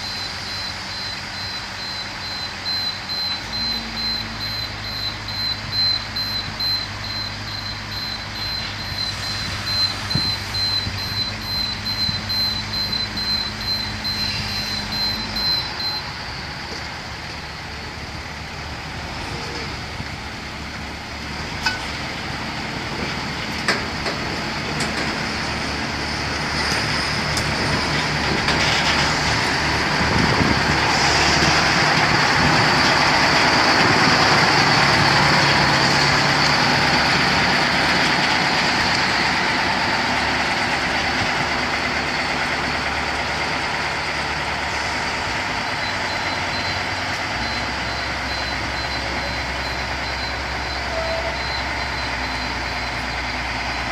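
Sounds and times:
diesel locomotive engine: 0.0s - 53.9s.

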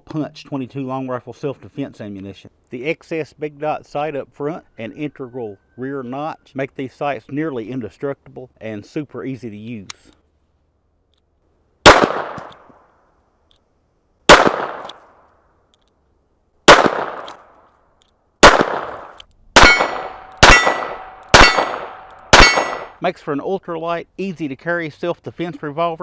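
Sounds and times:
revolver gunshots: 11.8s - 12.6s, 14.3s - 15.0s, 16.7s - 17.5s, 18.4s - 23.0s
steel target ringing: 19.6s - 23.0s.

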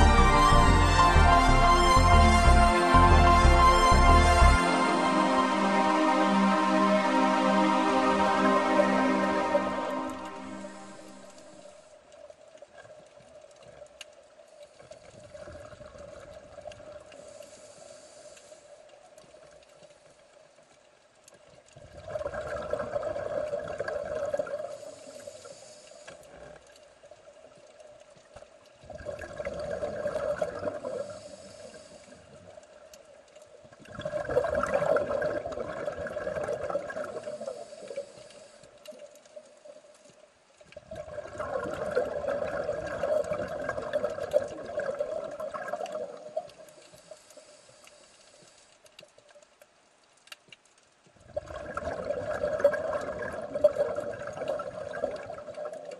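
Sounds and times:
underwater air bubbling: 21.8s - 26.6s, 28.8s - 32.8s, 33.7s - 39.8s, 40.7s - 47.6s, 51.2s - 55.9s.

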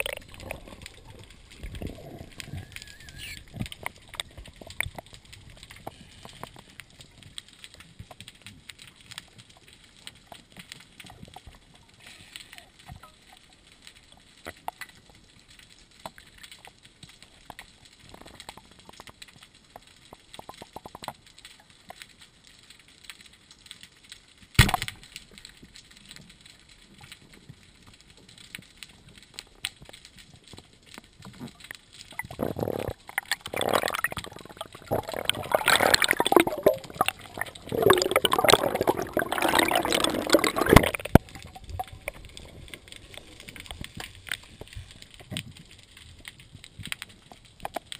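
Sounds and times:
gurgling bubbling water: 0.0s - 7.0s, 32.1s - 45.3s
faint underwater ticks: 0.0s - 47.9s.

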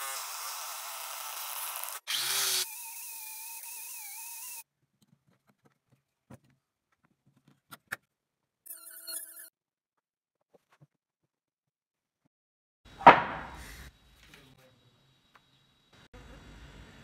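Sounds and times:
electric scroll saw whining: 0.0s - 4.6s
wooden pieces knocking: 13.0s - 13.6s.

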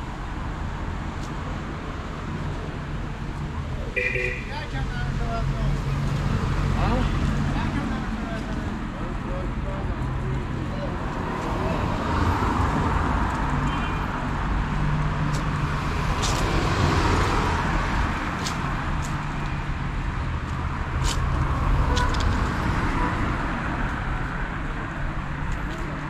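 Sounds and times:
road rumble: 0.0s - 26.0s.

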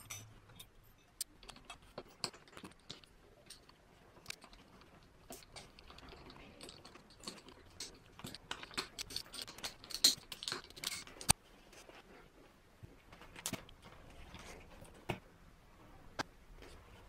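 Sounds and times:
small metallic clicks and clatters: 0.0s - 11.4s.

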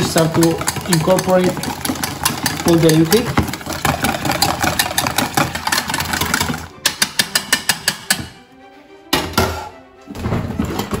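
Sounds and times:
wire whisk beating in metal bowl: 0.0s - 8.4s.

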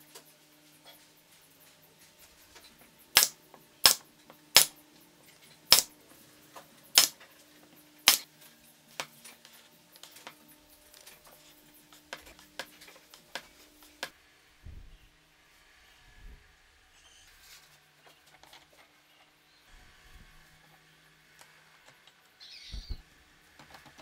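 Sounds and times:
nail gun firing into wood: 3.2s - 4.7s, 7.0s - 7.2s.

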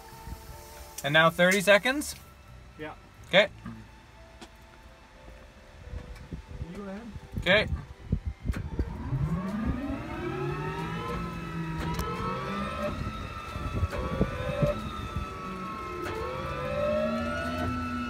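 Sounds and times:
water spraying: 0.0s - 2.4s
turbine starter whine: 0.0s - 18.0s.

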